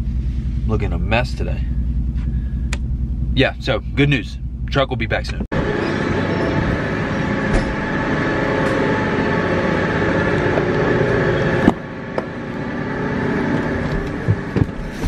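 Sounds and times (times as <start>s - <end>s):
truck engine idling: 0.0s - 4.7s, 5.5s - 15.0s.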